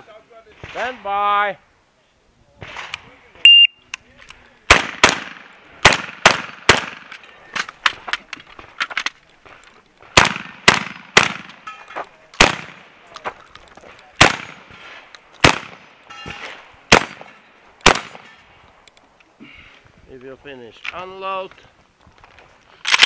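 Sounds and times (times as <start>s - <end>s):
shotgun shots: 4.7s - 7.2s, 10.1s - 11.6s, 12.4s - 12.9s, 14.2s - 18.4s.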